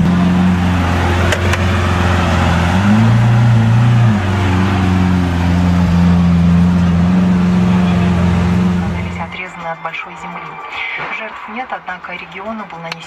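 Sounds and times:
car engine idling and revving: 0:00.0 - 0:13.0.

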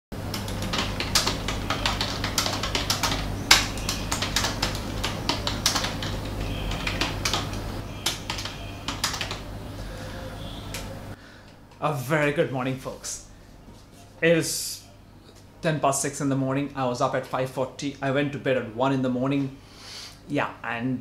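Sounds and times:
steady low hum: 0:00.2 - 0:18.4
keyboard keystroke clicks: 0:00.3 - 0:09.4.

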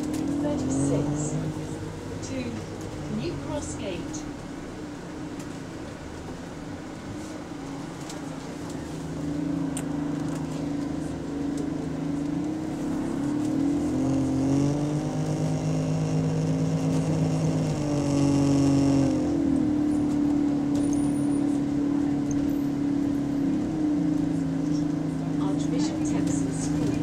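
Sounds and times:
bus engine pulling away: 0:00.0 - 0:27.0
rising whine: 0:08.0 - 0:24.6.

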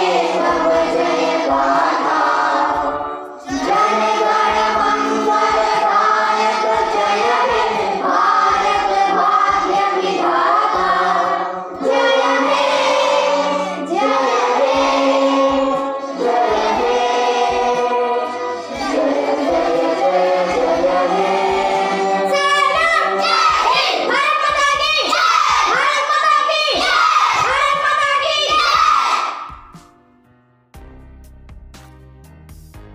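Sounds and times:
children singing: 0:00.0 - 0:29.5.

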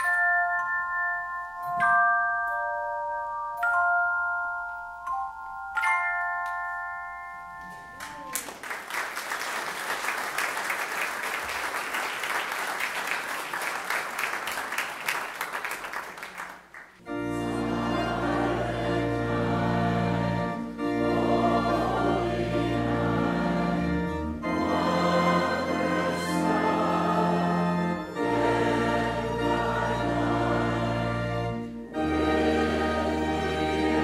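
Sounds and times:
handchimes ringing chords: 0:00.0 - 0:08.3
applause: 0:08.0 - 0:17.0
church organ chords: 0:17.0 - 0:34.0.

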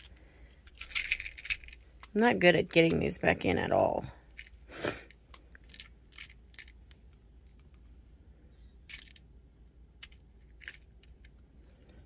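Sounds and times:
glass beads clicking and rattling: 0:00.0 - 0:01.9, 0:05.4 - 0:06.8.

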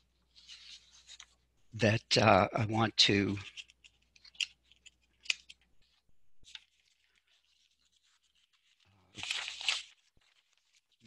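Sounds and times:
person speaking: 0:01.7 - 0:03.6.

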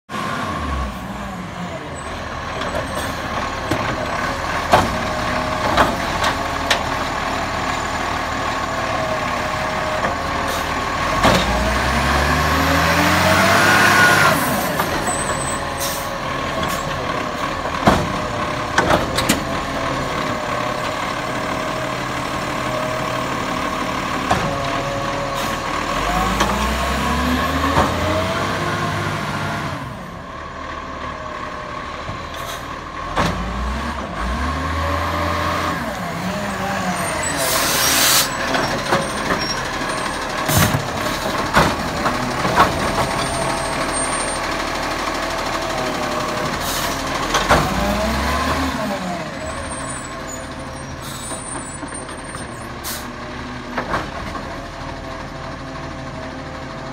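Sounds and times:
garbage truck engine revving: 0:00.1 - 0:56.9
lifter arm and bin clanking: 0:14.0 - 0:21.9, 0:36.9 - 0:48.7.

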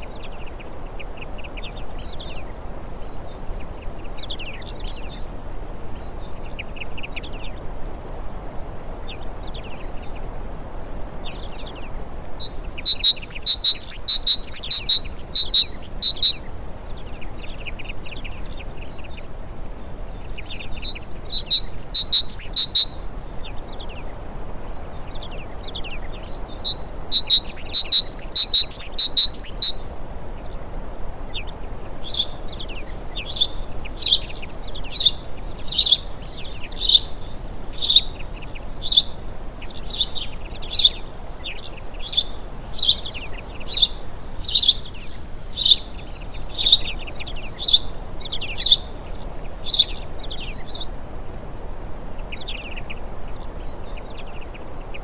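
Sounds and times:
small songbirds calling: 0:00.0 - 0:07.9, 0:09.0 - 0:10.4, 0:11.2 - 0:51.0, 0:52.1 - 0:55.0
sharp bird chirps: 0:12.4 - 0:16.4, 0:20.9 - 0:23.0, 0:26.6 - 0:29.8.

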